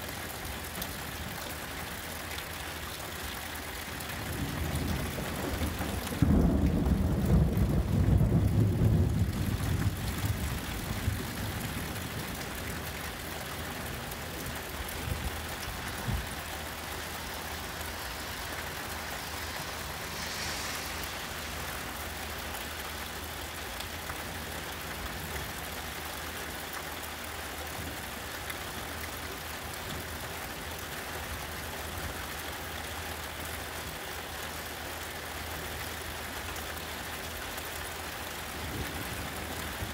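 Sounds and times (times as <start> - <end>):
steady rainfall: 0.0 - 39.9
thunder rumbling: 4.2 - 23.1.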